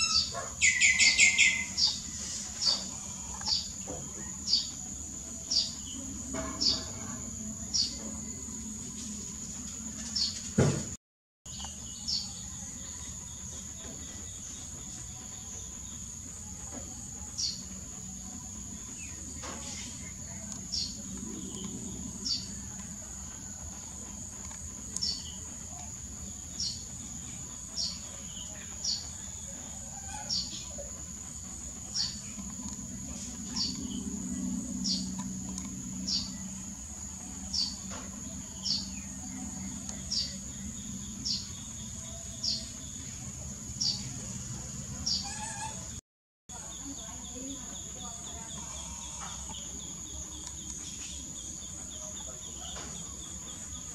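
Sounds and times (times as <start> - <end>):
low hum: 16.0 - 28.3, 30.6 - 45.1.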